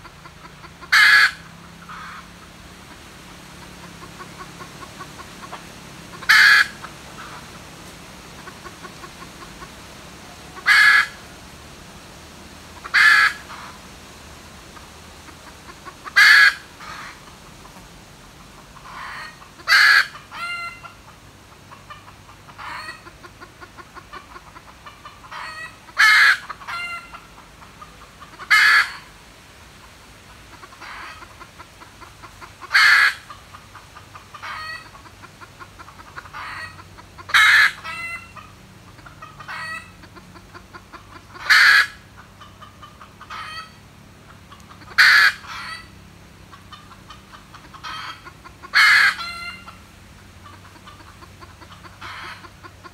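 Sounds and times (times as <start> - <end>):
soft rapid clucking: 0.0 - 11.5, 29.8 - 52.9
junglefowl calling: 0.0 - 11.6, 12.7 - 14.0, 14.7 - 29.2, 29.8 - 52.9.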